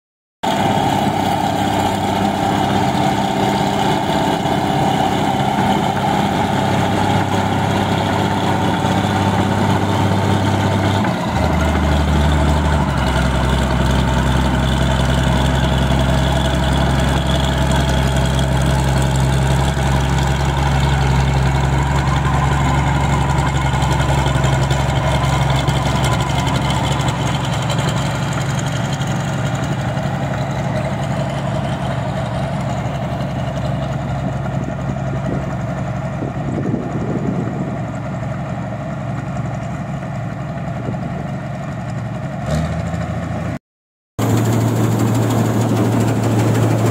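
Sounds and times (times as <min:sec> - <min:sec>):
combine harvester diesel engine: 0:00.4 - 0:43.6, 0:44.2 - 0:46.9.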